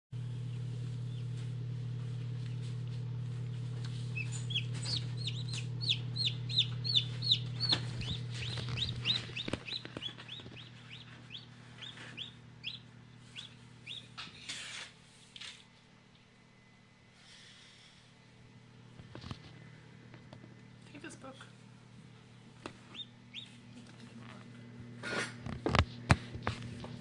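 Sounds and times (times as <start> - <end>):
incubator hum: 0.2 - 27.0
chicks peeping: 0.5 - 1.4, 3.4 - 14.2, 22.7 - 23.6.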